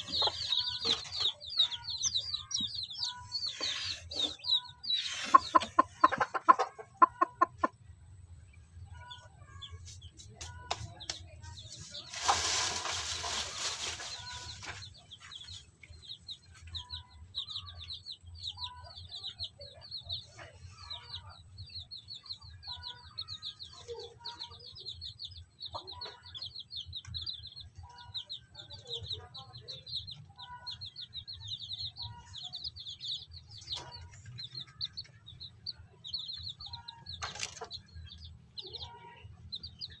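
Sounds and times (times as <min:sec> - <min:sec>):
hen clucking: 0:00.0 - 0:08.3
chicks peeping: 0:00.0 - 0:40.0.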